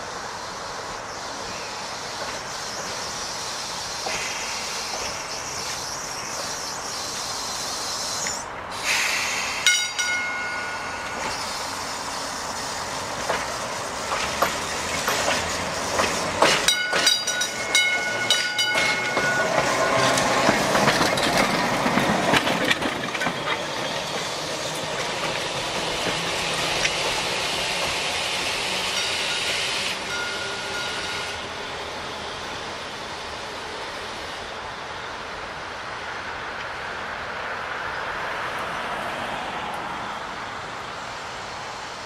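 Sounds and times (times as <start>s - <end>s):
streetcar wheels clattering on rails: 0.8s - 42.0s
streetcar warning gong ringing: 9.6s - 12.0s, 16.4s - 21.1s, 28.4s - 32.1s.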